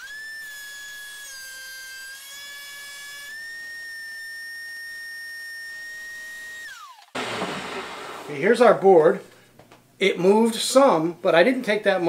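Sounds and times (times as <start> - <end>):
thickness planer whining: 5.6 - 8.6.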